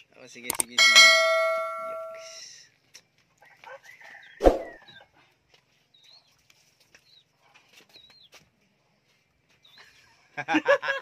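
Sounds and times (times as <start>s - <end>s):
small bird chirping: 5.9s - 7.3s, 7.9s - 8.4s.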